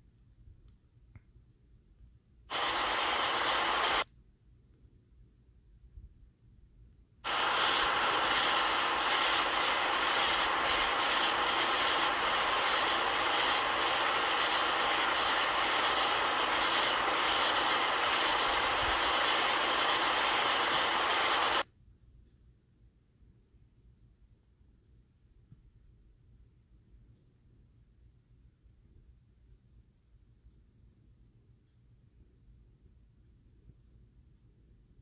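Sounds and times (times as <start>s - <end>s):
steady hiss from phone playback: 2.4s - 4.1s, 7.2s - 22.4s.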